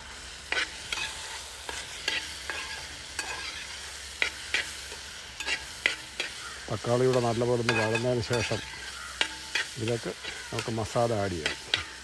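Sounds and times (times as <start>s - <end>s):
vegetables sizzling in oil: 0.0s - 12.0s
spatula clinking against pan: 7.1s - 12.0s.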